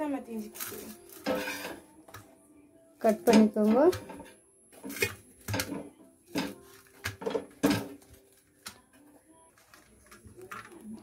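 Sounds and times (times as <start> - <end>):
pizza cutter rolling through bread: 0.5 - 1.9.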